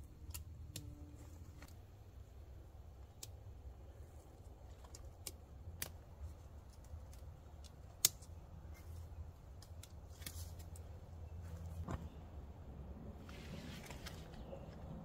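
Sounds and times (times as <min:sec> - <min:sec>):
low steady rumble: 0:00.0 - 0:15.0
tent clips clicking: 0:04.7 - 0:10.9.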